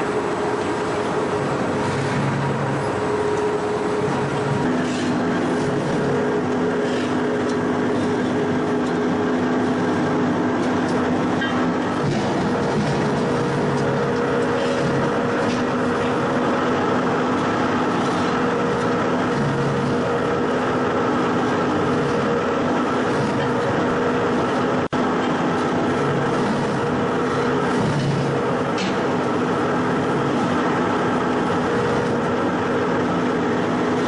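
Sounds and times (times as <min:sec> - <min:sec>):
shearing machine running: 0:00.0 - 0:34.0.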